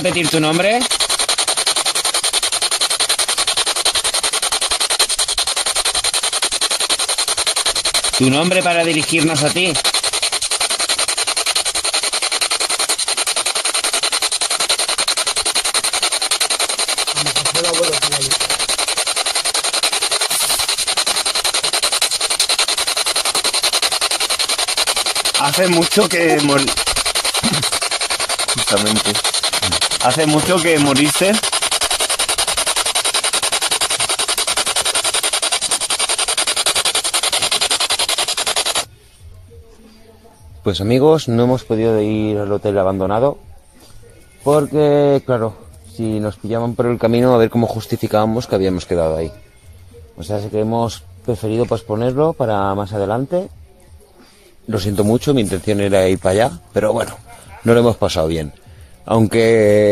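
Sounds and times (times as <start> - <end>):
pulsing radio static: 0.0 - 38.9.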